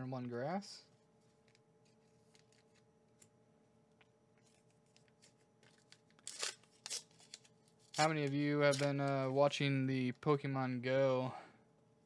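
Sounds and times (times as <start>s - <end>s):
card pack crackle: 1.8s - 2.8s, 4.5s - 9.3s
trading cards clicking and rustling: 4.4s - 9.3s.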